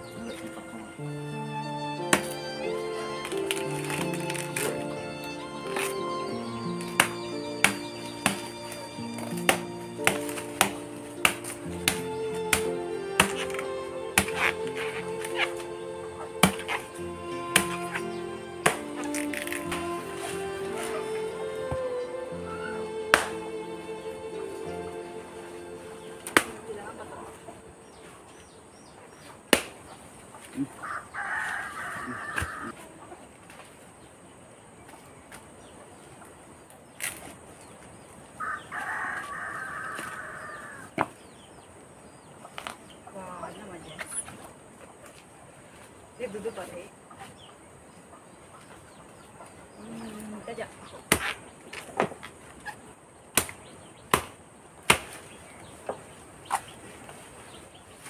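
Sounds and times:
palm stem snapping: 2.1 - 2.4, 3.2 - 4.9, 5.6 - 6.0, 6.8 - 15.7, 16.3 - 21.1, 23.1 - 23.5, 26.2 - 26.7, 29.5 - 29.8, 32.2 - 32.7, 37.0 - 37.3, 53.4 - 55.2
rooster crowing: 30.8 - 32.8, 38.4 - 40.9.

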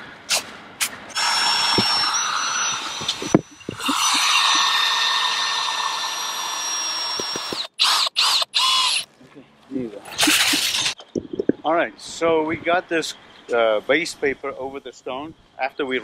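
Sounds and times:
power drill motor whine: 1.1 - 9.0.

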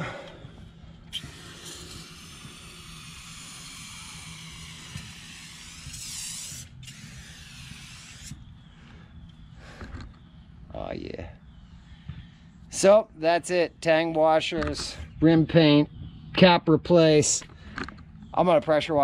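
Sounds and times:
aerosol spray can hissing: 1.1 - 8.4.

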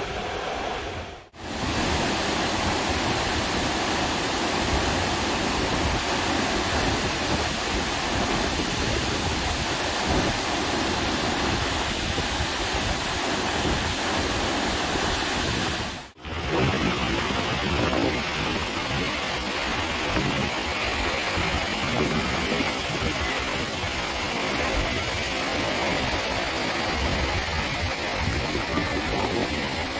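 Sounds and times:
water spilling over dam: 1.4 - 29.9.

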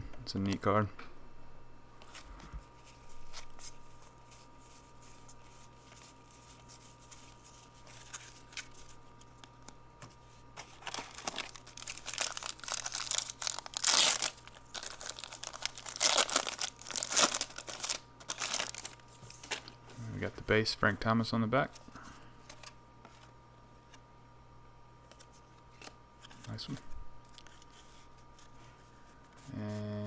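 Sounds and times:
plastic wrapper crinkling: 10.6 - 19.7.

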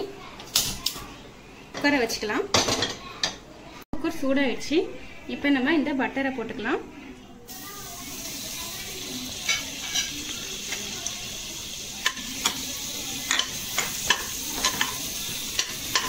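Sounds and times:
butter sizzling in a pot: 7.5 - 16.0.

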